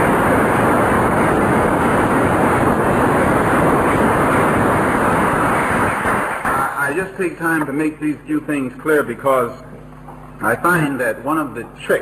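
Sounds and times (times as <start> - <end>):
audience applauding: 5.5 - 7.0.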